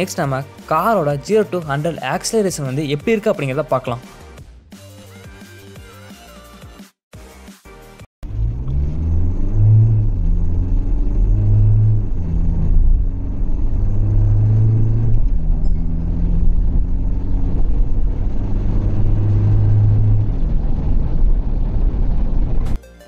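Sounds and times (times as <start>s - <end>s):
diesel engine accelerating hard: 8.2s - 22.8s.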